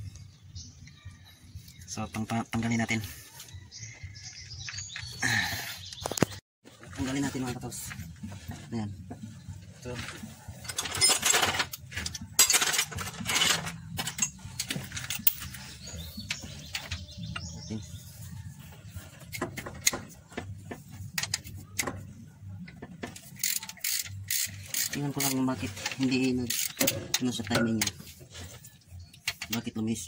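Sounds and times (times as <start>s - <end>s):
metal tools and bolts clinking: 10.0s - 17.5s, 23.1s - 28.2s, 29.2s - 29.8s
ratchet wrench clicking: 23.3s - 25.4s.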